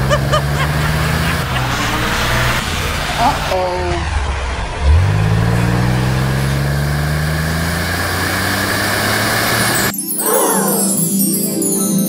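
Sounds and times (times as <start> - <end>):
car engine revving: 0.0 - 9.9.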